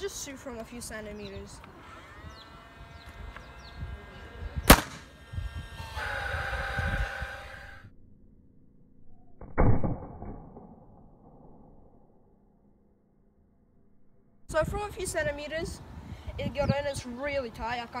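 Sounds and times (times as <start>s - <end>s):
rough noise: 1.4s - 7.9s
nail gun firing crack: 4.6s - 5.2s.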